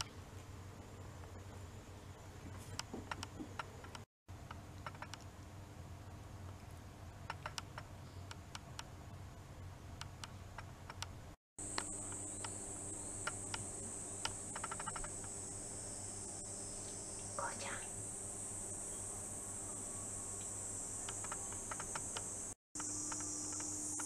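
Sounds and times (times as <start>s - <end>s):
cicadas droning: 11.6s - 24.0s.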